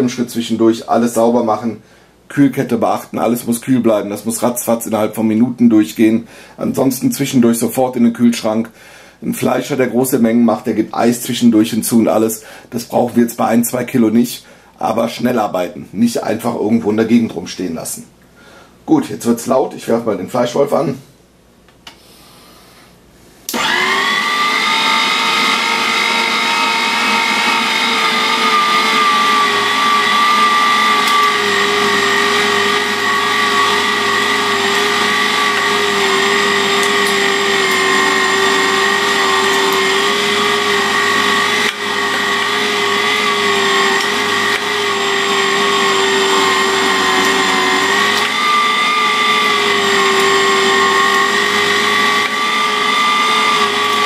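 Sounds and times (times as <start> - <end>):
electric meat grinder motor whining: 23.5 - 54.0.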